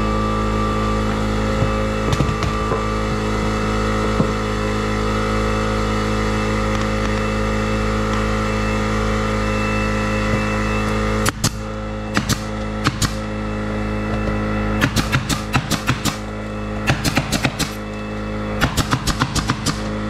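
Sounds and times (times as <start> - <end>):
motor droning: 0.0 - 20.0
pneumatic nailer firing: 1.0 - 4.7, 10.3 - 13.3, 14.1 - 18.0, 18.6 - 20.0.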